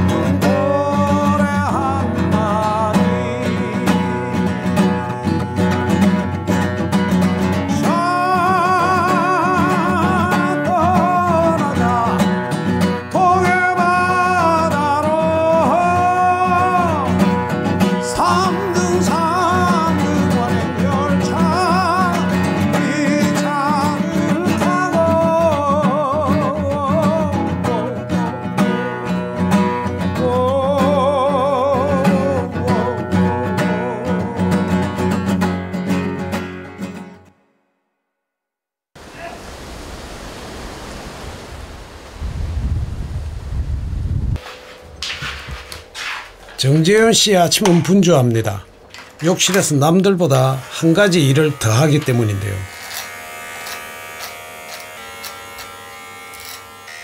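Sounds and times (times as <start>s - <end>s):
man singing with vibrato: 0.0s - 5.2s, 7.6s - 28.9s, 29.9s - 34.9s
strummed acoustic guitar: 0.0s - 37.3s.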